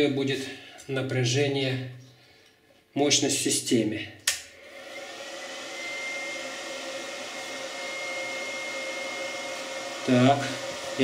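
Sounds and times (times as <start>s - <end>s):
inverter switch click: 4.2s - 4.5s
inverter whirring: 4.6s - 11.0s.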